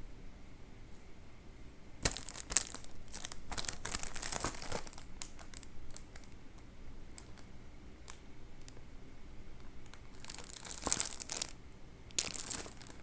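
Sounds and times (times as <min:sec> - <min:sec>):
plastic wrappers crinkling: 0:02.0 - 0:08.8, 0:09.6 - 0:13.0.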